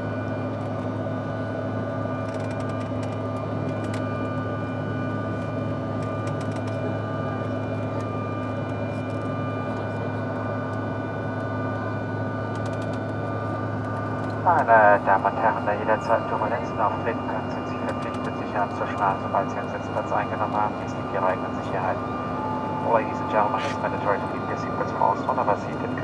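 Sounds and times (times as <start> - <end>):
jet engines droning: 0.0 - 26.0
steady tones: 15.6 - 26.0.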